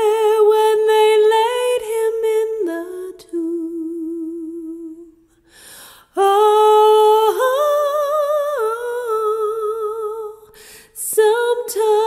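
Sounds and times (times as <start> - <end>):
singer breath: 5.3 - 6.2, 10.5 - 11.0.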